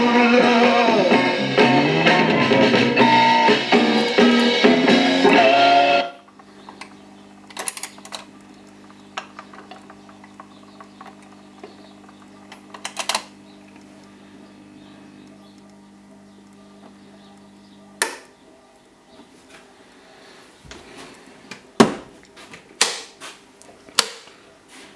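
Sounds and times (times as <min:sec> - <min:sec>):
guitar music from record player: 0:00.0 - 0:07.4
low amplifier hum: 0:00.0 - 0:24.6
record deck mechanical clicking: 0:06.2 - 0:14.2.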